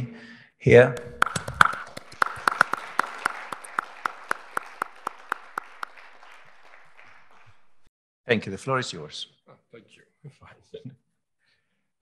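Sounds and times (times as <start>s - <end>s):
audience applauding: 1.0s - 7.9s
close loud hand claps: 1.0s - 7.9s.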